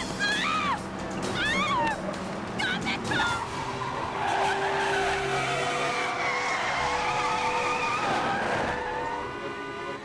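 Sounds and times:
car engine: 0:00.0 - 0:10.0
car tires squealing: 0:03.1 - 0:09.8.

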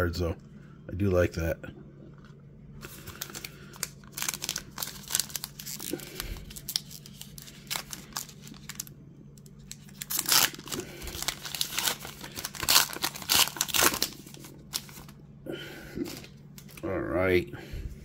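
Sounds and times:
card pack wrapper tearing: 0:02.8 - 0:08.9, 0:09.6 - 0:15.2.

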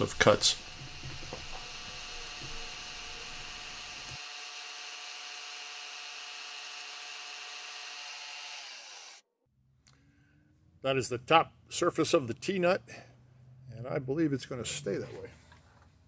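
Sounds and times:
faint motor whine: 0:00.0 - 0:04.2
milling machine cutting metal: 0:00.0 - 0:09.2.

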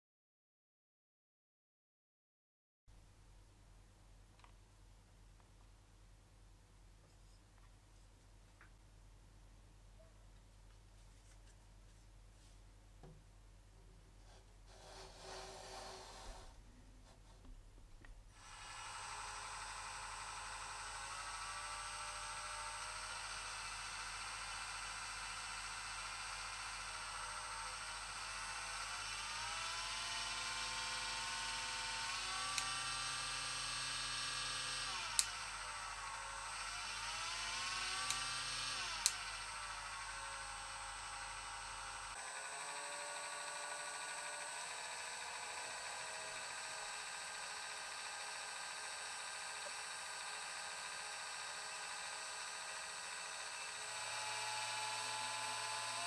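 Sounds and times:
rotary tool motor whine: 0:14.7 - 0:16.5, 0:18.4 - 0:56.0.

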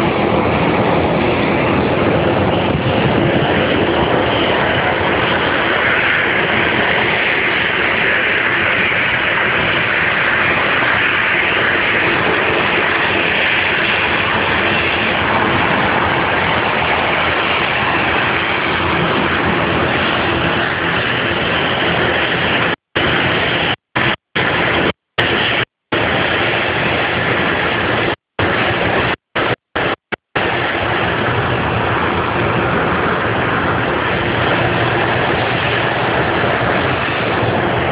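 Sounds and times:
jet engines rushing: 0:00.0 - 0:37.9.

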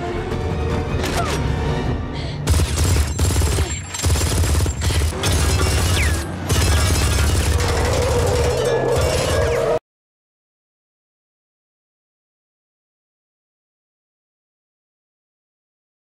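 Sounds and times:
action film score: 0:00.0 - 0:09.8
machine gun firing bursts: 0:02.5 - 0:09.2.

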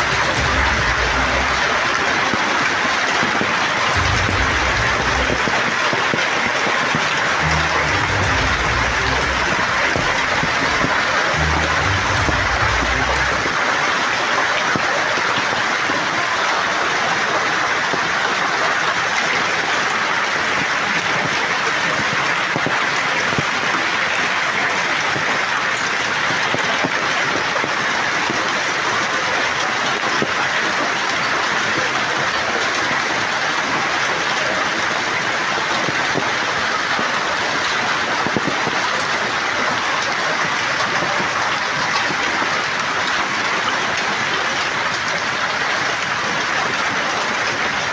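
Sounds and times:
heavy hail pelting: 0:00.0 - 0:47.9.

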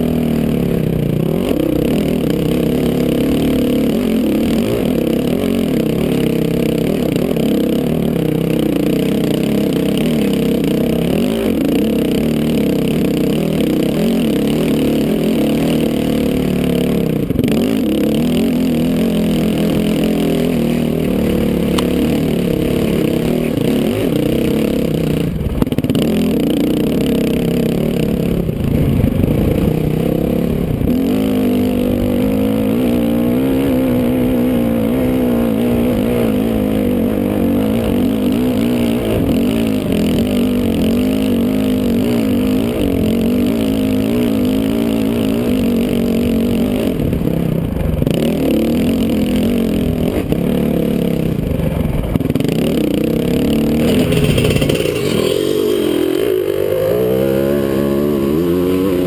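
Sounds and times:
dirt bike engine revving: 0:00.0 - 0:59.0
clatter from rough ground: 0:01.0 - 0:30.3, 0:51.4 - 0:59.0.

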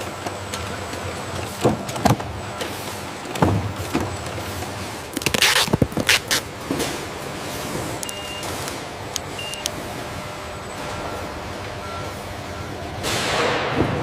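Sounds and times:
boxes clacking and thudding: 0:00.0 - 0:08.0
machinery humming: 0:00.0 - 0:14.0.

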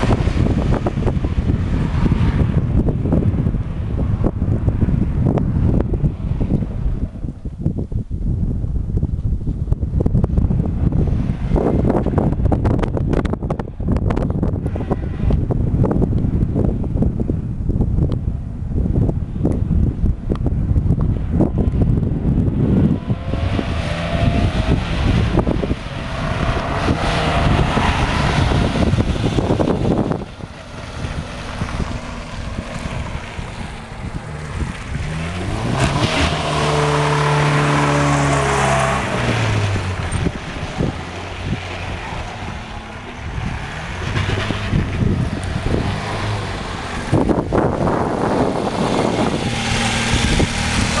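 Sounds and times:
wind rumble on microphone: 0:00.0 - 0:51.0
van engine accelerating past: 0:22.7 - 0:51.0.

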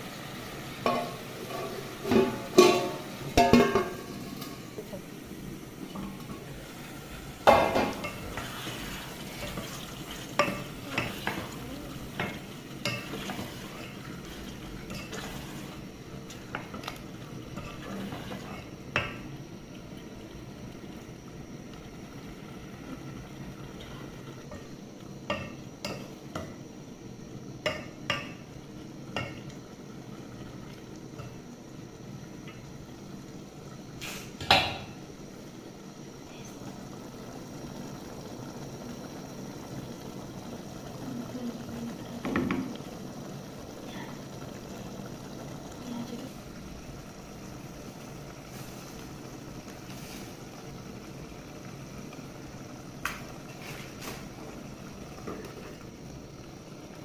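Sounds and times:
wooden spoon knocking on pot: 0:42.2 - 0:42.7.

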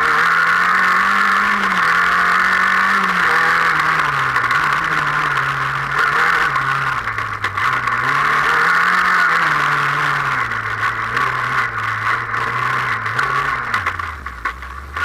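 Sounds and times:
racing car engine revving: 0:00.0 - 0:15.0.

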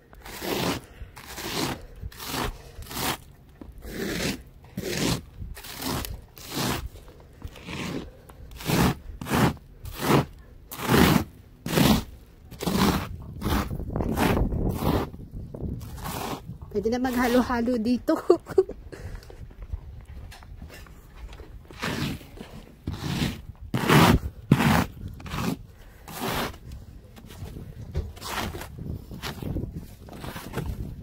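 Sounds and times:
snow brush scraping ice off windshield: 0:00.2 - 0:15.2, 0:15.8 - 0:17.5, 0:21.7 - 0:26.7, 0:28.2 - 0:30.9.

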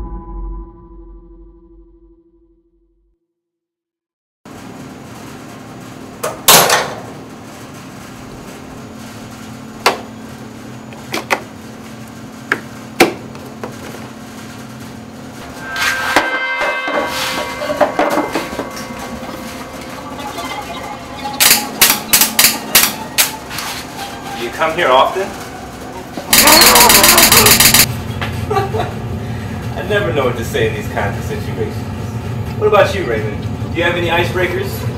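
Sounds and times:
steady low hum: 0:10.2 - 0:24.2
sustained ringing tones: 0:15.4 - 0:23.5, 0:24.4 - 0:27.9.

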